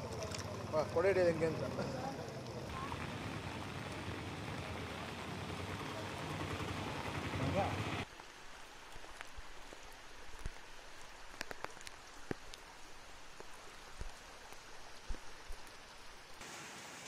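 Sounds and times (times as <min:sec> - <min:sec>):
rain falling on water: 0:00.0 - 0:17.0.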